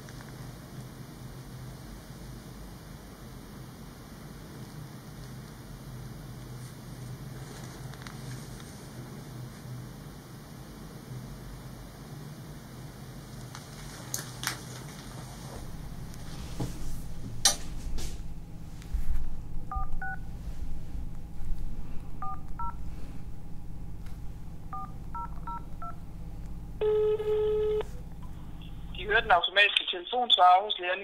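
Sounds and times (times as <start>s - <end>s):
low steady hum: 0.0s - 31.0s
keypad beeps: 19.7s - 20.2s, 22.2s - 22.8s, 24.7s - 26.0s, 26.8s - 28.4s
phone ring tone: 26.8s - 28.4s.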